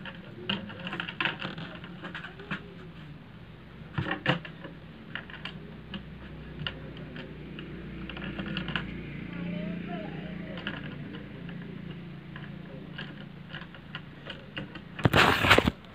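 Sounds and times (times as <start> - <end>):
steady low hum: 0.0 - 15.9
paper being handled: 15.0 - 15.9.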